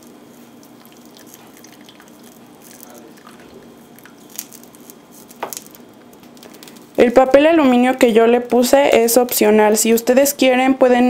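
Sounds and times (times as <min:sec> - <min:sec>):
light crackles: 0:00.0 - 0:07.0.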